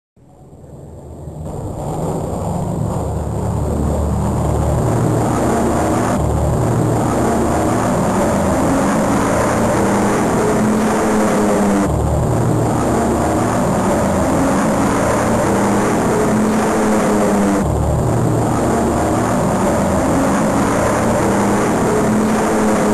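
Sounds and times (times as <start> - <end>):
piston aircraft engines droning: 0.2 - 22.9.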